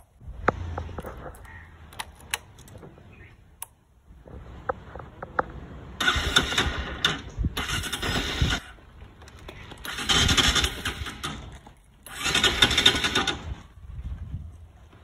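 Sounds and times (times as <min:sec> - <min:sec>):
electric starter cranking engine: 0:06.0 - 0:08.8, 0:09.7 - 0:13.6.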